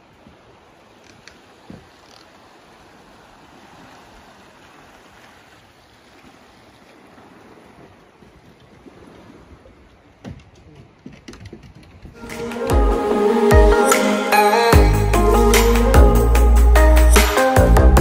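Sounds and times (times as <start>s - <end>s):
outdoor ambient rush by water: 0.0s - 18.0s
background music: 12.2s - 18.0s.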